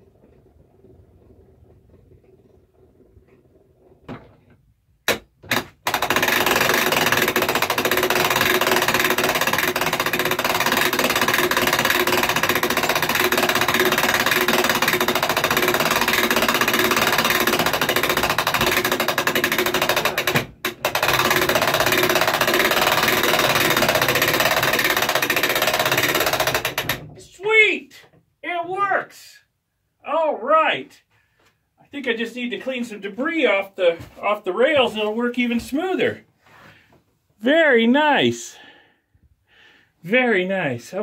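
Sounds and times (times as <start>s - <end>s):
winch crank mechanical clatter: 0.0s - 27.1s.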